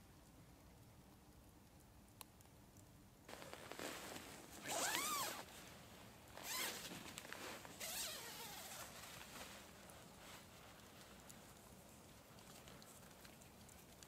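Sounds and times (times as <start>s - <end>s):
tent zip pulled: 3.3s - 5.5s, 6.4s - 9.4s.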